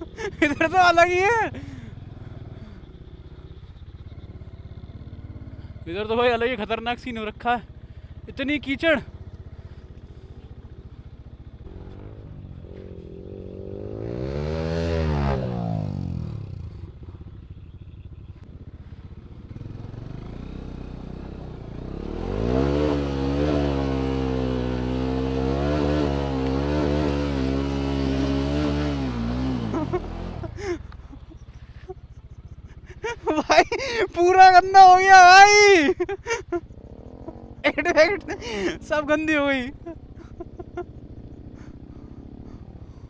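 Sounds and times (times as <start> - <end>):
motorcycle engine revving: 0.0 - 43.0.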